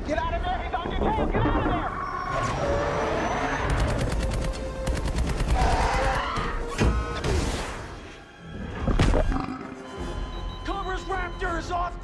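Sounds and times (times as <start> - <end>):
orchestral film score: 0.0 - 12.0
rapid automatic cannon fire: 3.6 - 6.3.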